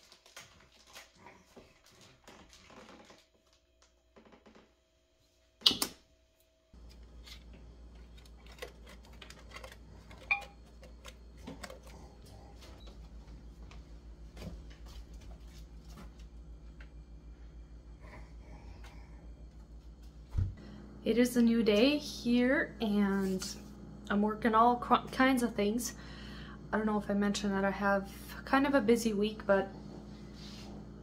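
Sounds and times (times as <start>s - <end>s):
steady low hum: 0.1s - 31.0s.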